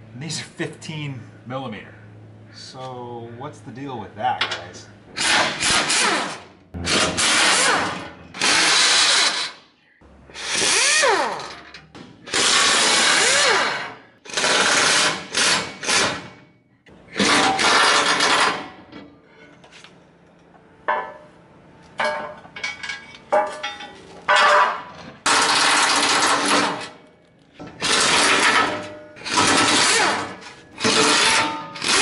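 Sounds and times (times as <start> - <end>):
air wrench bursts: 5.2 - 9.6, 10.4 - 11.6, 12.3 - 16.3, 27.8 - 32.0
knocks and clanks: 22.0 - 27.0.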